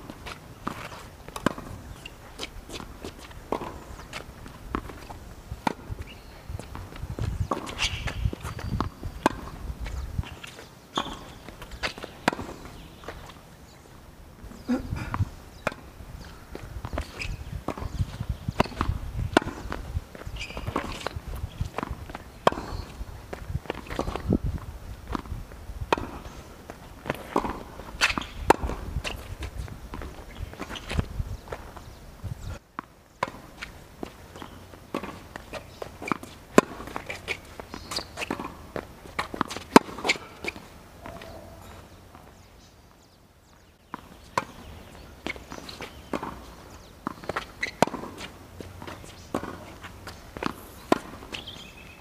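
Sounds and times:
footsteps on court: 0.0 - 13.6, 14.4 - 52.0
tennis ball struck by rackets: 0.1 - 5.0, 7.5 - 9.6, 11.0 - 13.3, 18.6 - 24.3, 25.9 - 30.8, 32.8 - 41.7, 43.9 - 51.8.

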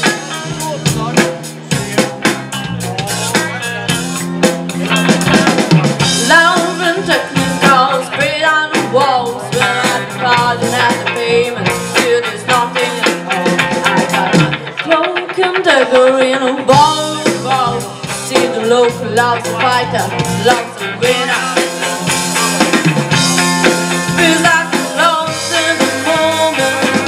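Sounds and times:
electric bass: 0.0 - 15.0, 16.6 - 27.0
drum kit: 0.0 - 27.0
electric guitar: 0.0 - 27.0
woman singing: 6.1 - 22.8, 23.9 - 27.0.

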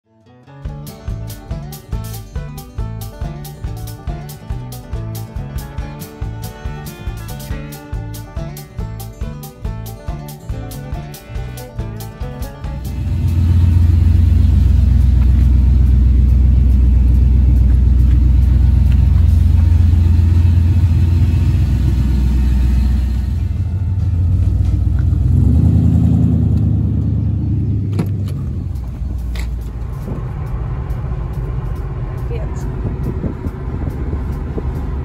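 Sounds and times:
car engine rumbling: 0.8 - 35.0.

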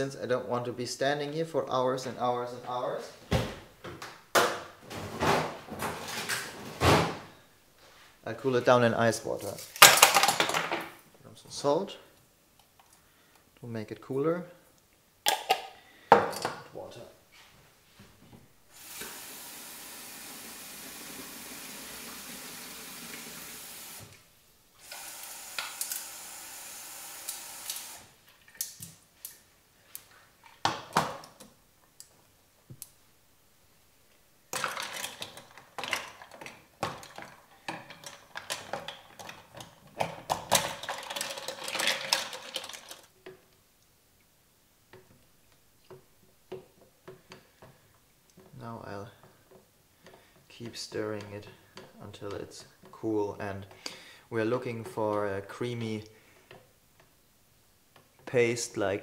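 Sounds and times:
tap water running into saucepan: 18.8 - 24.0.

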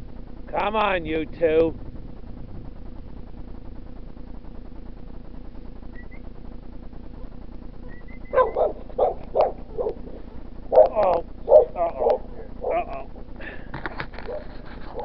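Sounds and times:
dog barking: 8.3 - 12.9, 14.3 - 15.0.

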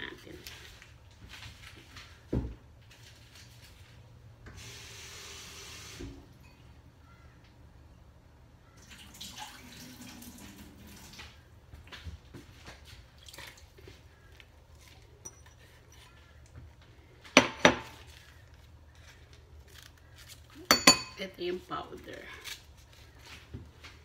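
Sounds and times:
herbs rustling: 12.4 - 24.0
small clinks on a metal pot: 20.6 - 21.2.

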